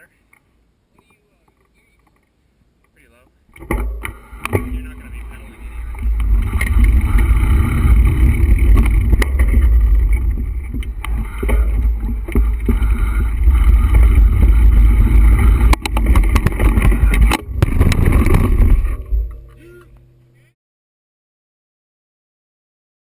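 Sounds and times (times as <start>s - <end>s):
bike and camera rattling: 3.5s - 20.3s
wind rumble on microphone: 3.9s - 19.5s.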